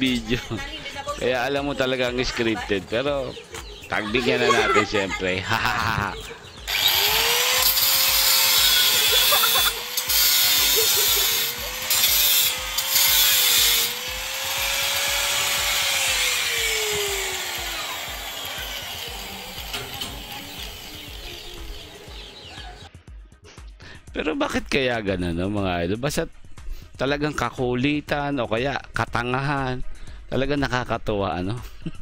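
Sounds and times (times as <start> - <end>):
angle grinder cutting metal: 6.6 - 22.4.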